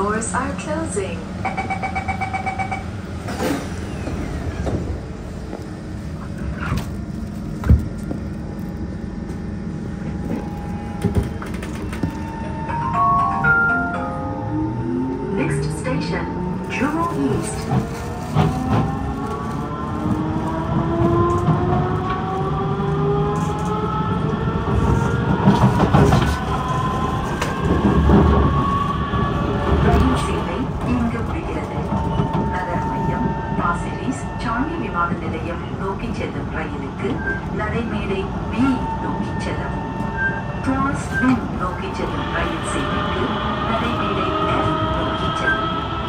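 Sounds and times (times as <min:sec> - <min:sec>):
train wheels rumbling: 0:14.4 - 0:46.0.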